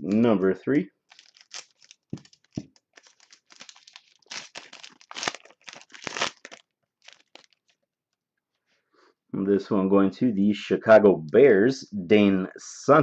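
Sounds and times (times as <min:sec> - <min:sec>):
scissors snipping wrapper: 0:01.1 - 0:07.7
wrapper crinkling: 0:01.1 - 0:07.8.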